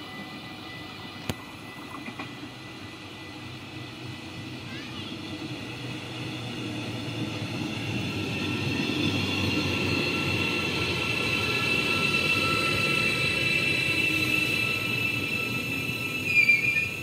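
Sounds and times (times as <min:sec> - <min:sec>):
train rumbling: 0:00.0 - 0:17.0
high steady squeal: 0:05.7 - 0:17.0.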